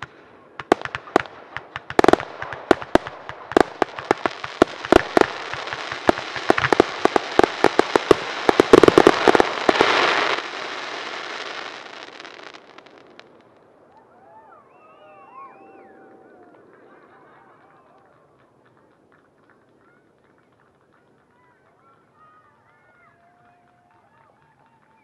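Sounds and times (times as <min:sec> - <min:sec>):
fireworks bangs and crackle: 0:00.0 - 0:13.7
hiss of crackling stars: 0:01.0 - 0:13.7.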